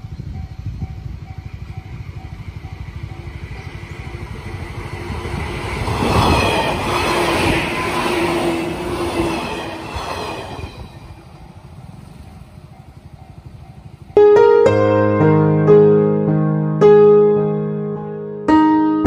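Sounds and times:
electric train passing: 0:00.0 - 0:14.9
level crossing warning bell: 0:00.3 - 0:05.6, 0:11.8 - 0:14.2.

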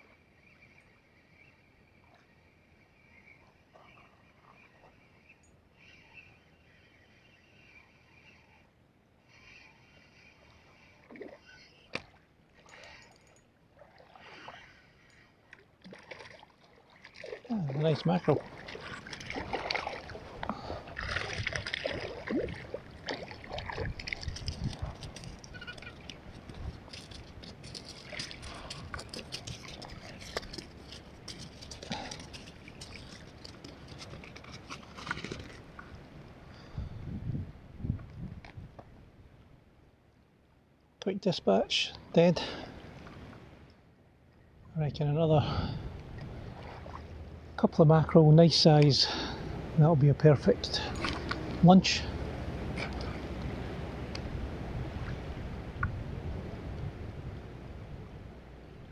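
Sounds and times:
water splashing: 0:15.8 - 0:35.9, 0:46.3 - 0:47.5, 0:50.4 - 0:53.6
fish flapping on pebbles: 0:23.6 - 0:35.7.

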